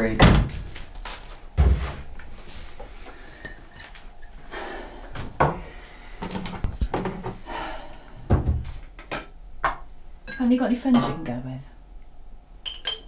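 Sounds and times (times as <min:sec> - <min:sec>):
crockery and cutlery clinking: 0:10.3 - 0:11.6, 0:12.6 - 0:13.0.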